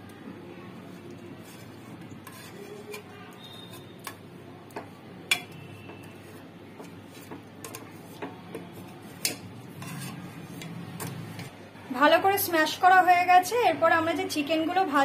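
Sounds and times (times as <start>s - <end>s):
ladle knocking and scraping pot: 1.4s - 11.6s.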